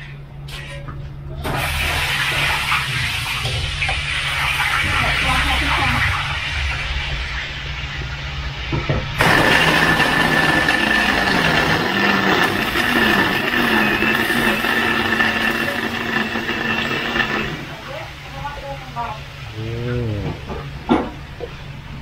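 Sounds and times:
electric blender whining: 9.2s - 18.0s.

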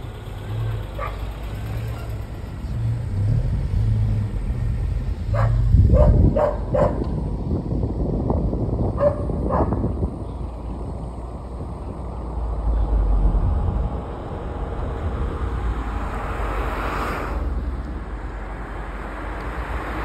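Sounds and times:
car engine and tyre rumble: 0.0s - 20.0s
dog barking: 1.0s - 1.3s, 5.3s - 7.0s, 9.0s - 9.8s.

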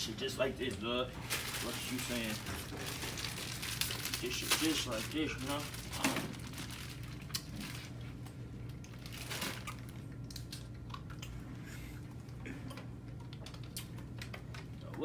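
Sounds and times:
low steady hum: 0.0s - 15.0s
wrapper crinkling: 1.2s - 8.1s, 8.8s - 10.6s
crunching dry noodles: 1.3s - 11.3s.

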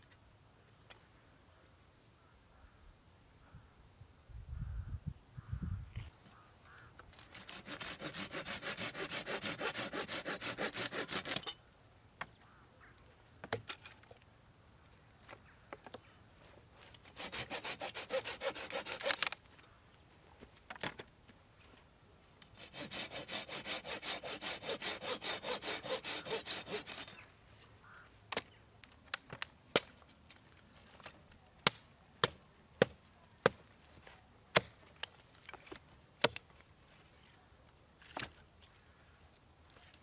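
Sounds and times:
hand saw cutting wood: 7.2s - 11.6s, 17.0s - 19.4s, 22.6s - 27.2s.

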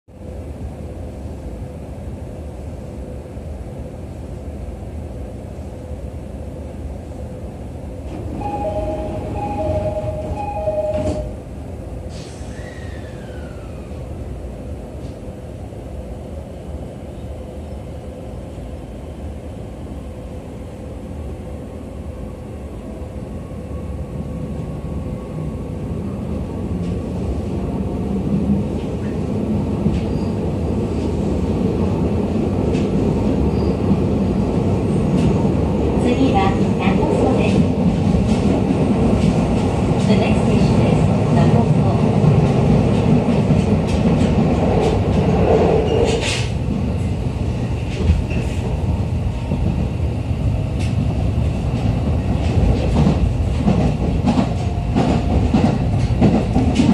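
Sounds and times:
train car hum: 0.1s - 56.9s
train running noise: 0.2s - 56.9s
train doors shutting with a knock: 8.1s - 11.4s
two-note door chime: 8.4s - 11.3s.

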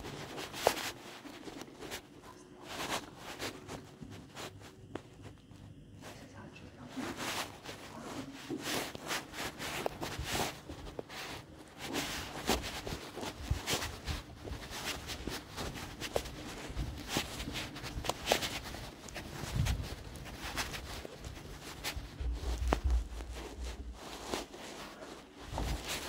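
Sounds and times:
rubbing and scraping: 6.9s - 26.0s.

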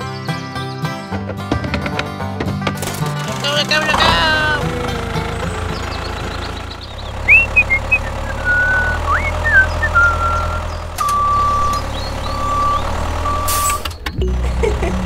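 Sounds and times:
truck engine running: 0.2s - 15.0s
whistled chirps: 7.2s - 13.8s.

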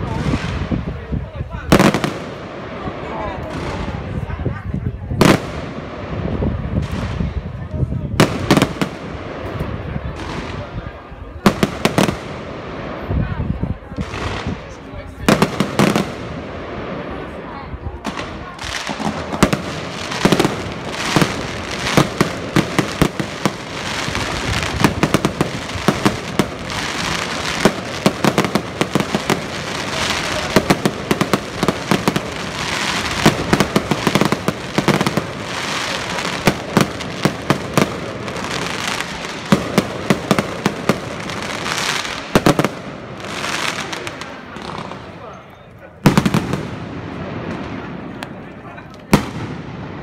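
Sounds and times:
small firework pops: 47.4s - 49.6s.

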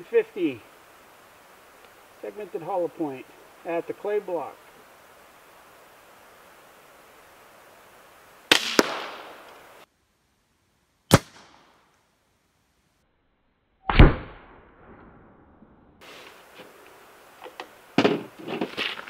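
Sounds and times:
rifle shots cracking: 8.5s - 9.6s, 11.1s - 11.7s.

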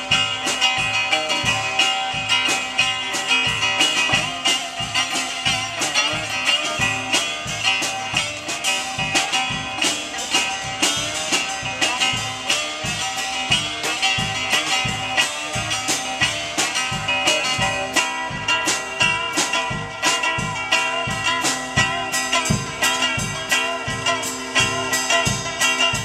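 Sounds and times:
amplified guitar playing blues: 0.0s - 26.0s
steady beat: 0.0s - 26.0s.

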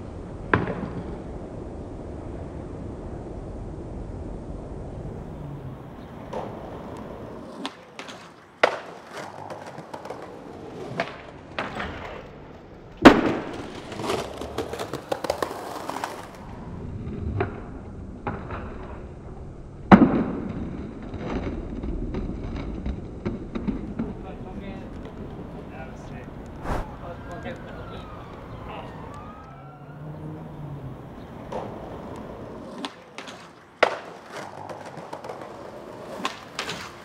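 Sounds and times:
skateboard wheels rolling on concrete: 0.0s - 37.0s
skateboard impacts: 0.4s - 1.4s, 5.3s - 26.9s, 31.3s - 37.0s.

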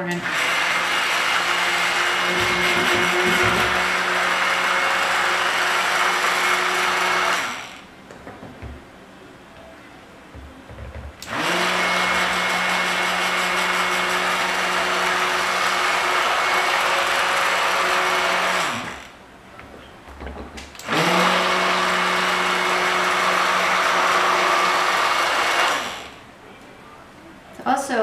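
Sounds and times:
electric stick blender running: 0.0s - 7.9s, 11.2s - 19.2s, 20.8s - 26.2s.

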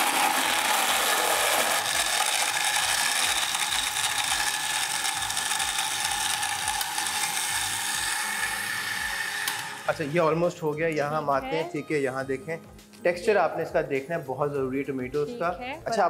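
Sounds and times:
blender motor whine: 0.0s - 10.5s.

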